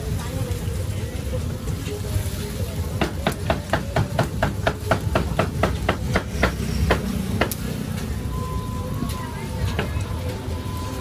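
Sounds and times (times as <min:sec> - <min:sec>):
cleaver chopping meat on block: 0:03.0 - 0:07.6.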